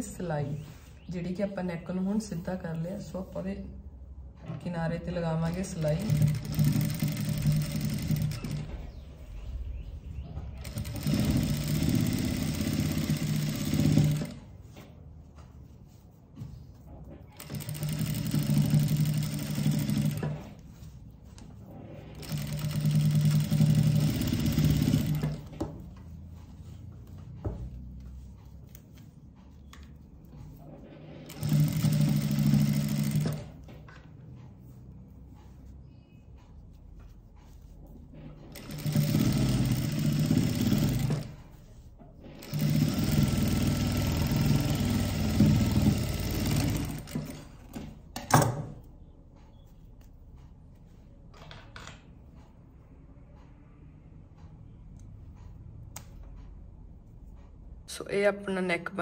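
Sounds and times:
sewing machine running: 0:05.6 - 0:08.7, 0:10.6 - 0:14.4, 0:17.4 - 0:20.5, 0:21.8 - 0:25.5, 0:30.8 - 0:33.6, 0:38.5 - 0:41.4, 0:42.2 - 0:47.8.

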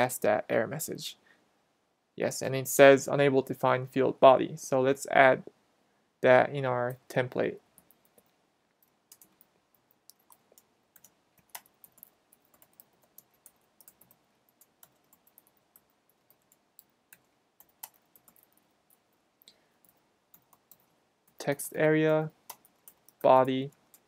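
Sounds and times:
faint typing on keyboard: 0:06.9 - 0:24.0.

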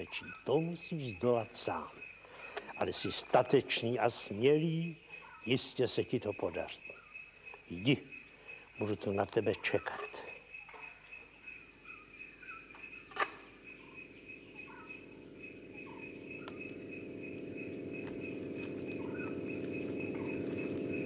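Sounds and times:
bird chirps: 0:00.0 - 0:21.0
insect trill: 0:00.0 - 0:21.0
low hum: 0:13.3 - 0:21.0.

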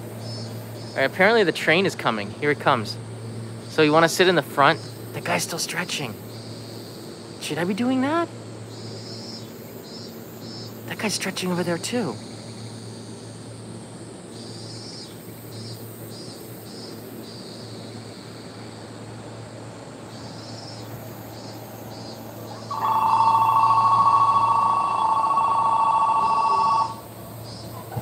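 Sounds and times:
faint high chirps: 0:22.0 - 0:28.0
electric bell ringing: 0:22.7 - 0:27.1.

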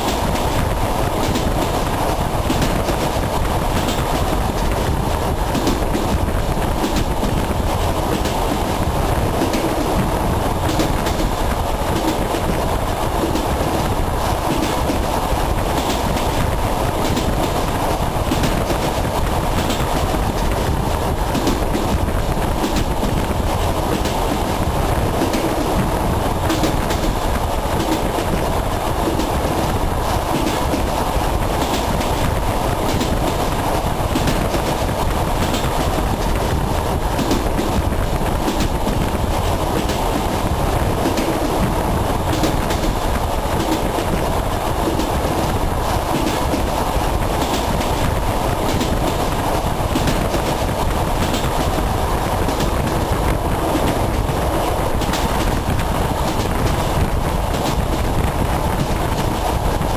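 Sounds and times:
train rumbling inside carriage: 0:00.0 - 0:59.9
wheels clicking over rail joints: 0:00.0 - 0:59.9.

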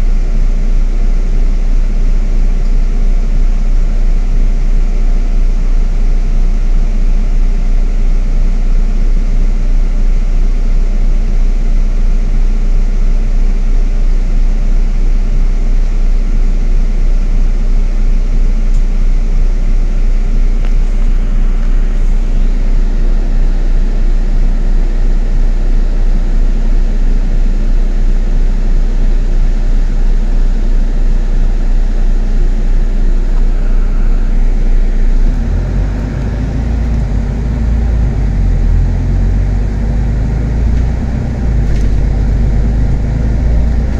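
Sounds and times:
bus engine and road noise: 0:18.3 - 0:27.8, 0:29.0 - 0:43.9.

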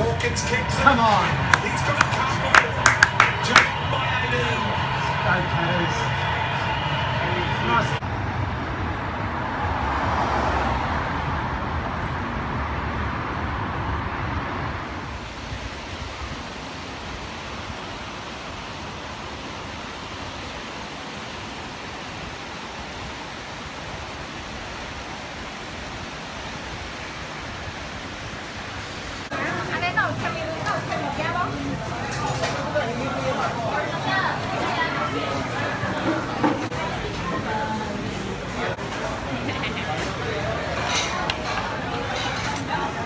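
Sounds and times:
rain hissing: 0:00.0 - 0:08.2, 0:14.4 - 0:41.9
low rumble: 0:00.0 - 0:17.7.

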